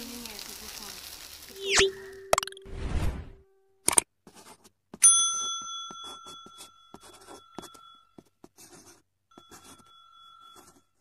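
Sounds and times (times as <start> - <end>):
scratchy pen-drawing strokes: 4.2 - 4.8, 6.0 - 11.0
bright bell ding: 5.0 - 8.0.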